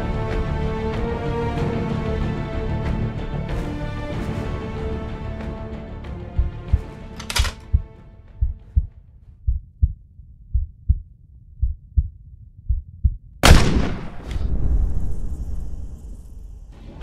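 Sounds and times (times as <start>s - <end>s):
music: 0.0s - 9.3s, 15.0s - 17.0s
heartbeat thumps: 6.1s - 13.4s
rifle shot: 13.4s - 14.8s.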